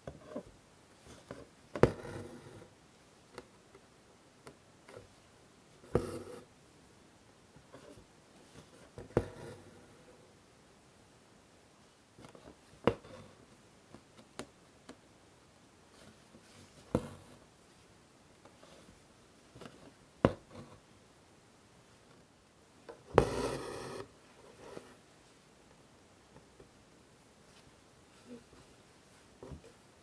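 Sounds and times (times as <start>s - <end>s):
thread rasping through fabric: 23.0s - 24.9s.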